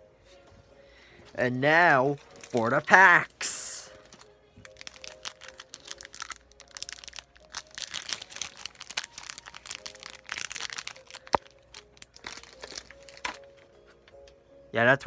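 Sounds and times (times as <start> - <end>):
plastic wrapper crinkling: 2.1 - 3.2, 3.9 - 13.7.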